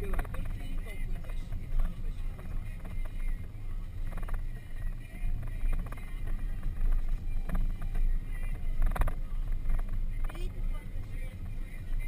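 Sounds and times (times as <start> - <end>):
engine and tyres rumbling: 0.0 - 12.0.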